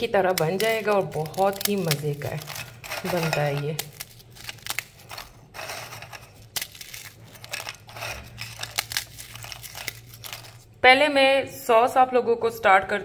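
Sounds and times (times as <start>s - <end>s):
biscuit pieces clicking: 0.0s - 10.6s
biscuits snapping by hand: 0.0s - 10.7s.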